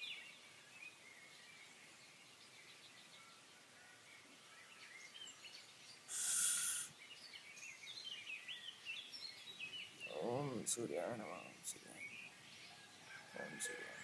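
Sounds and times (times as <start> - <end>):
small birds chirping: 0.0 - 14.0
loud hiss burst: 6.1 - 7.0.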